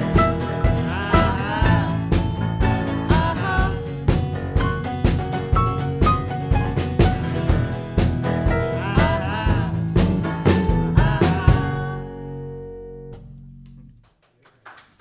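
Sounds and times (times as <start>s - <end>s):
drum hits: 0.0s - 11.8s
live band playing: 0.0s - 12.1s
faint applause: 14.0s - 15.0s.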